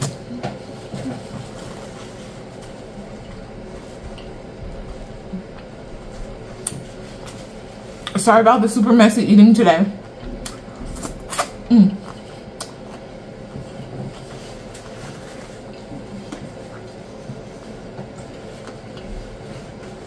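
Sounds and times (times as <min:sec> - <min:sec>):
soft chewing: 0:00.2 - 0:08.2
mouth humming: 0:10.2 - 0:12.8
crunchy biting: 0:10.4 - 0:11.6.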